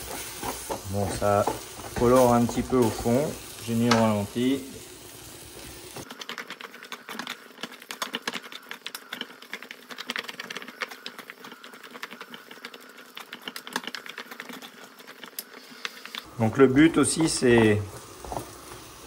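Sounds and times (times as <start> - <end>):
wooden spatula scraping pan: 0.0 - 4.1
meat and onions sizzling: 0.0 - 19.0.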